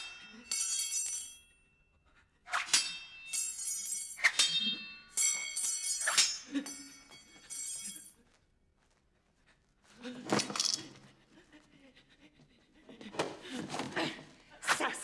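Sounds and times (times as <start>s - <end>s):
swords clashing with metallic ringing: 0.0s - 1.5s, 2.5s - 8.1s.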